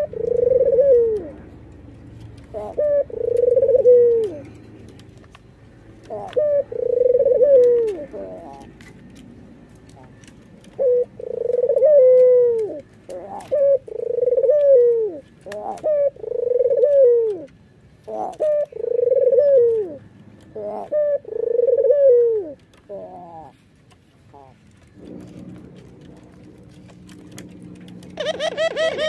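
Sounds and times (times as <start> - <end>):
dove cooing: 0.0 - 1.7, 2.4 - 4.8, 6.0 - 9.0, 9.9 - 23.6, 24.3 - 29.0.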